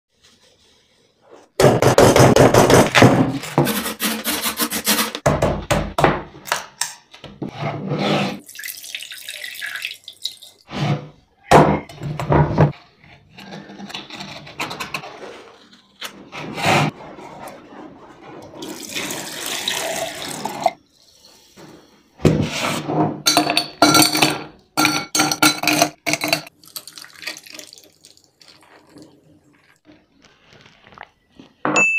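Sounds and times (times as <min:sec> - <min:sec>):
water splashing in a bowl: 0:08.4 - 0:10.7, 0:26.5 - 0:29.8.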